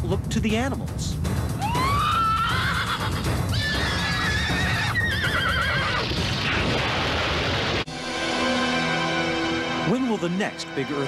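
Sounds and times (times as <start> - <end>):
horse neighing: 2.0 - 6.2.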